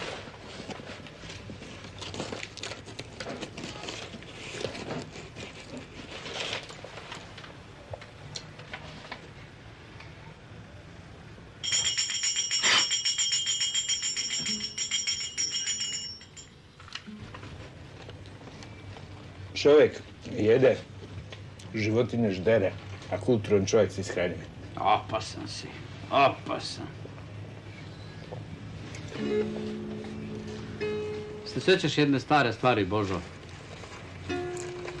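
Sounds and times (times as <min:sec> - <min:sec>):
paper rustling and crinkling: 0:00.0 - 0:07.6
bell ringing with rattling hammer: 0:11.6 - 0:16.6.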